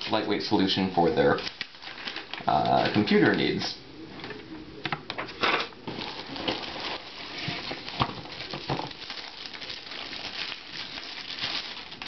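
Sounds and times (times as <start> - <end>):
cardboard scraping and rustling: 5.9 - 9.0
cardboard crackles and knocks: 5.9 - 12.0.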